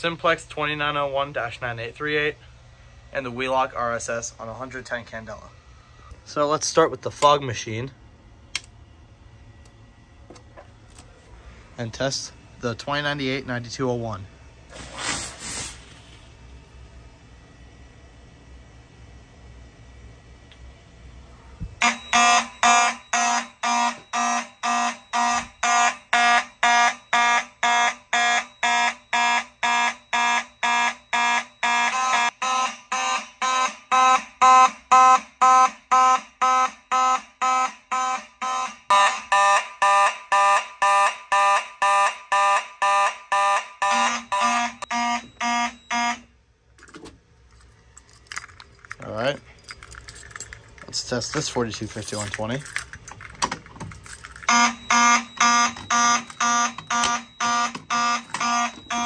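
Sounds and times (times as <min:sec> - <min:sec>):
fire alarm horns pulsing: 0:21.8 - 0:46.4, 0:54.1 - 0:59.0.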